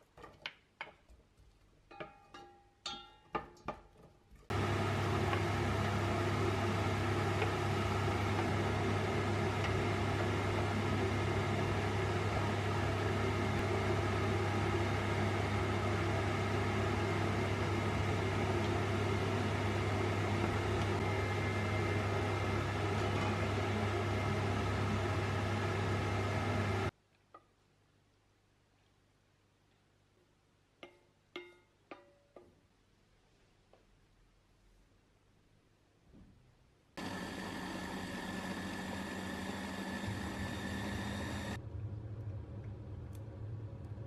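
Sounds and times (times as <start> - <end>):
induction hob electrical hum: 1.9 - 27.0, 37.0 - 44.0
fan whirring: 4.5 - 26.9, 37.0 - 44.0.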